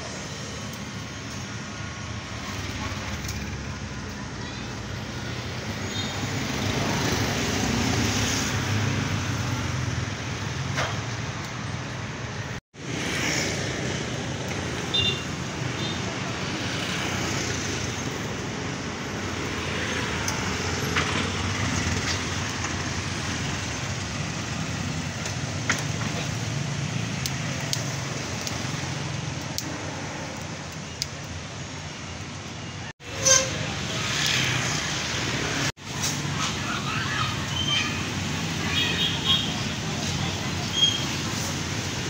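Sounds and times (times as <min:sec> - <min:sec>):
motorbikes passing: 0:00.0 - 0:30.8, 0:33.0 - 0:42.0
cars passing: 0:00.0 - 0:42.0
voices in background: 0:35.9 - 0:42.0.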